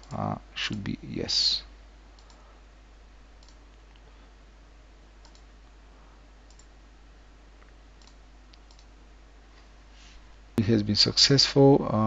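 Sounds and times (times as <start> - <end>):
background hiss: 0.0 - 12.0
computer mouse clicks: 2.2 - 2.4, 3.4 - 4.0, 5.2 - 5.5, 6.4 - 6.7, 8.0 - 8.9.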